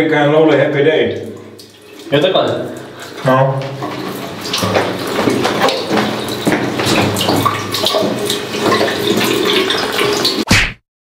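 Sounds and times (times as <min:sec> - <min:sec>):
liquid splashing into urinal: 0:00.4 - 0:10.6.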